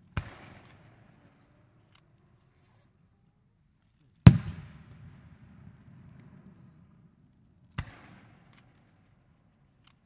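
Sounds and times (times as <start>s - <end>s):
faint firework crackles: 4.2s - 9.6s
firework bang with rolling echo: 4.3s - 6.6s.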